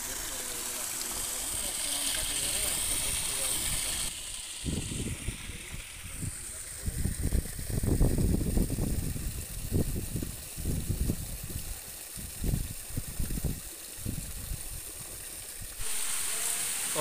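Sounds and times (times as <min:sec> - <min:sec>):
water splashing down stone steps: 0:00.0 - 0:04.6, 0:08.3 - 0:17.0
wind buffeting microphone: 0:04.6 - 0:14.8.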